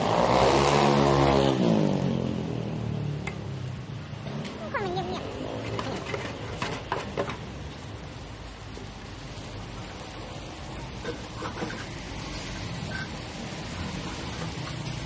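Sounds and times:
egg sizzling in hot oil: 0.0s - 4.4s, 5.2s - 15.0s
metal spatulas scraping a pan: 5.6s - 7.4s, 11.0s - 15.0s.

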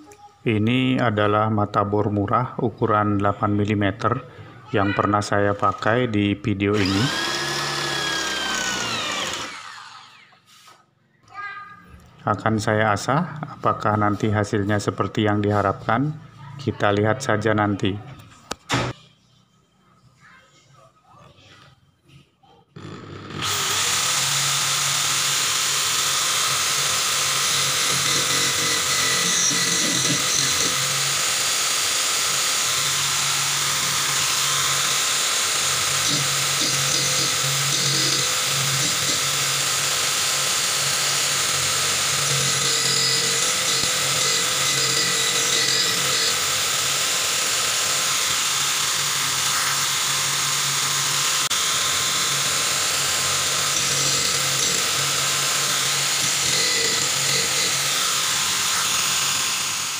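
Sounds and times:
electric drill running: 6.7s - 10.4s, 22.8s - 59.9s
drill bit grinding against stone: 6.8s - 10.2s, 22.8s - 59.9s.

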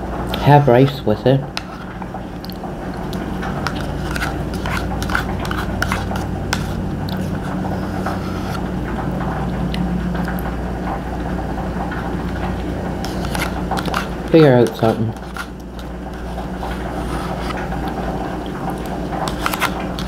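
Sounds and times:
steady low hum: 0.0s - 20.0s
chewing and mouth sounds: 1.6s - 8.5s, 13.0s - 20.0s
spoon scraping a cup: 3.6s - 8.6s, 13.0s - 15.5s, 19.2s - 20.0s.

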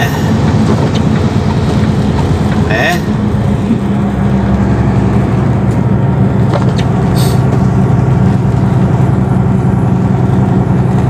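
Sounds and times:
truck engine running: 0.0s - 11.0s
tyres hissing on wet road: 7.1s - 7.5s.

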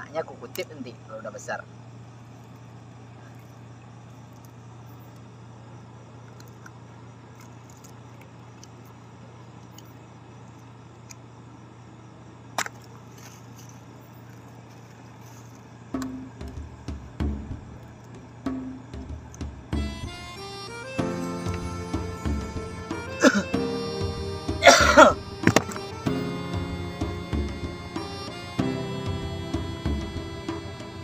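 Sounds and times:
night insects chirping: 0.0s - 31.0s
steady low hum: 0.0s - 31.0s
music: 15.9s - 31.0s.

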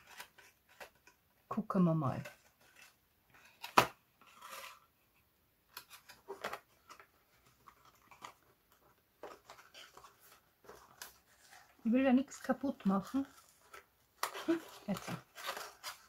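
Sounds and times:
card rustling: 0.0s - 1.2s, 5.7s - 16.0s
light clicks and scrapes of cardboard: 0.0s - 1.2s, 5.7s - 11.8s.

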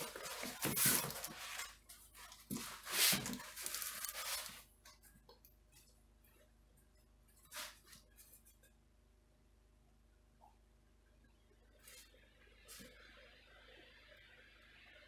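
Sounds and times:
cardboard rustling and scraping: 0.0s - 6.0s, 7.3s - 8.6s.

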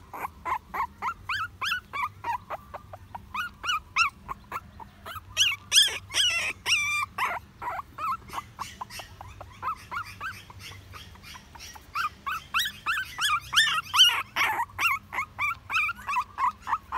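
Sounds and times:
puppy crying: 0.0s - 16.9s.

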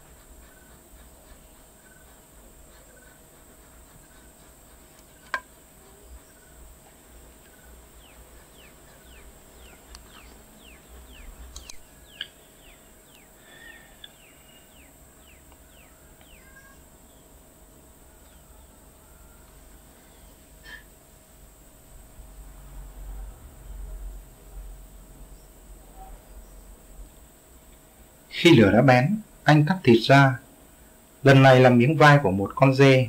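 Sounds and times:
sharp click: 11.5s - 12.4s.

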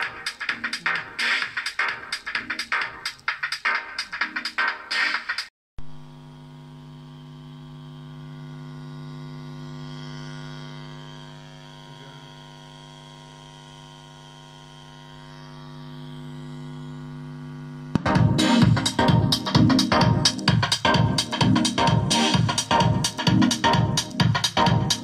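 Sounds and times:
electronic music: 0.0s - 5.5s, 17.9s - 25.0s
music with drums: 0.0s - 5.5s, 18.0s - 25.0s
loudspeaker electrical hum: 5.8s - 13.2s.

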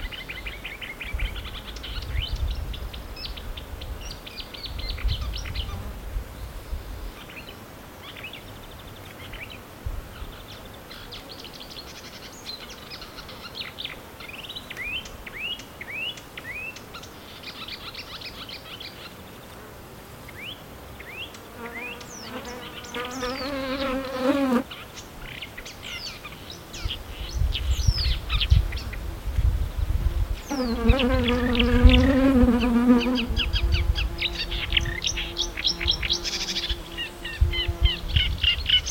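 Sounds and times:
insect buzzing: 21.4s - 24.7s, 27.7s - 38.9s
bird singing chirps and trills: 30.4s - 38.9s.

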